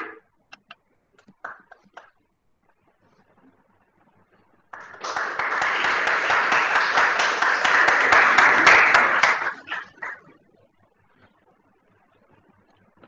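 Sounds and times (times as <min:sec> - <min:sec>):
audience applauding: 0:04.7 - 0:10.2.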